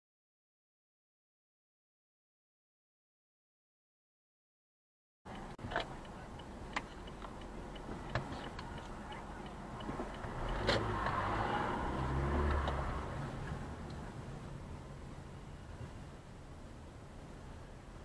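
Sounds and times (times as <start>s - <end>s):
faint ticking: 5.3s - 11.0s
car engine and road rumble: 5.3s - 18.0s.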